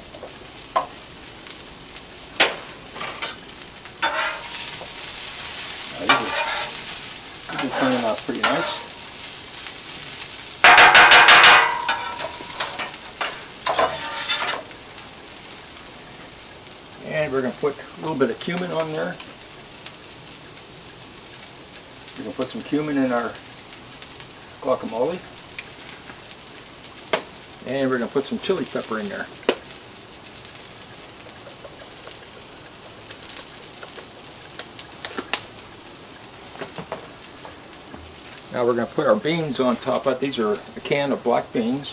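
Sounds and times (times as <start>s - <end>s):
sharp pops of frying: 0.0s - 41.8s
vegetables sizzling in oil: 0.0s - 41.9s
metal spatula scraping griddle: 4.0s - 9.2s, 10.6s - 14.7s.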